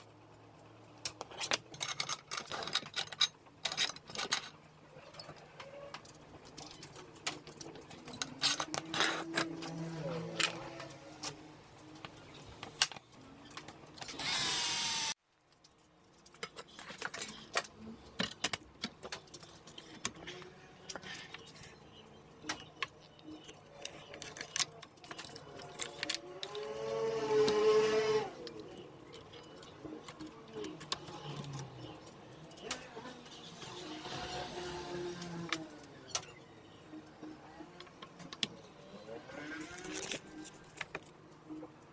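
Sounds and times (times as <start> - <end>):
clicks and knocks of parts handled: 1.0 - 14.3, 15.4 - 21.7, 22.4 - 27.6, 39.6 - 41.9.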